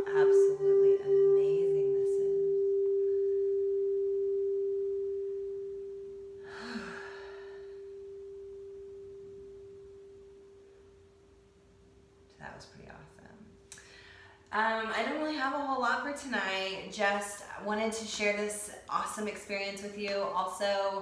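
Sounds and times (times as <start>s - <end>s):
singing bowl ringing: 0.0s - 11.5s
long breath out: 6.4s - 8.0s.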